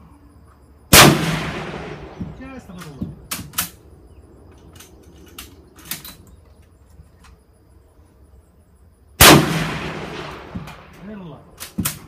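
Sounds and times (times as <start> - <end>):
rifle shot echo: 0.9 - 2.6, 9.2 - 12.0.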